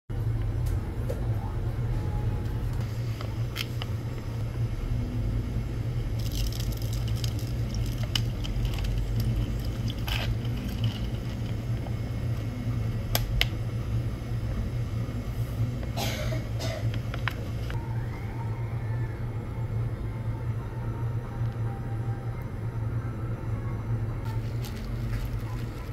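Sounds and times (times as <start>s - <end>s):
ice crackling and clicking: 6.2s - 11.6s
liquid squishing from pouch: 6.2s - 11.6s, 24.4s - 25.9s.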